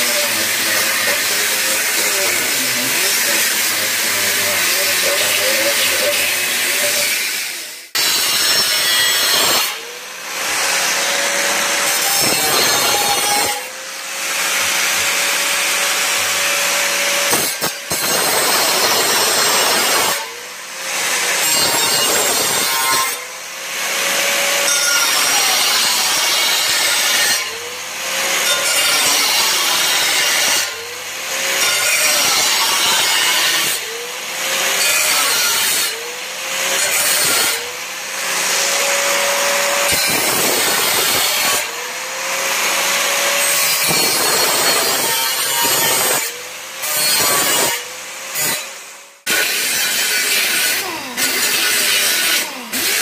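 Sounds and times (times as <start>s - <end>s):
angle grinder grinding metal: 0.0s - 53.0s.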